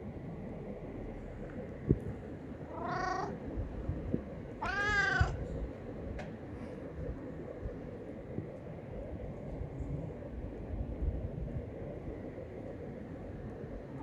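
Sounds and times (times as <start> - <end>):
cat meowing: 2.7 - 3.4, 4.6 - 5.4.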